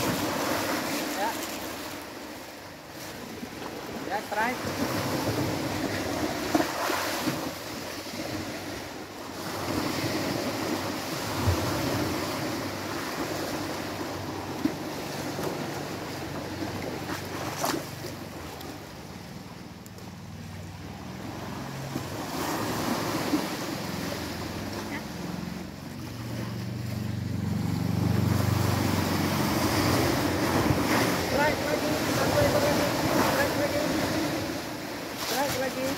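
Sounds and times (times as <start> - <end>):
small waves washing onto beach: 0.0 - 35.9
engine low hum: 24.0 - 30.8.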